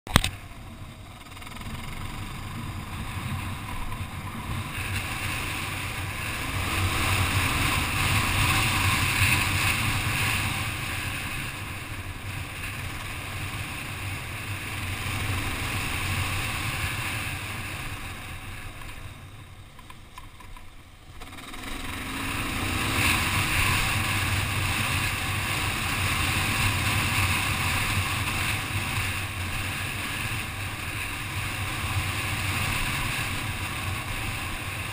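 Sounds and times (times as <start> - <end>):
motorcycle engine running: 0.1 - 34.9.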